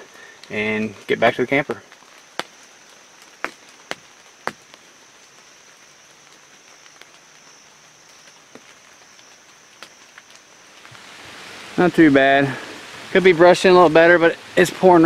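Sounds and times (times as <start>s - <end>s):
rain hissing on fabric: 0.0s - 15.0s
raindrops tapping on fabric: 1.8s - 11.1s.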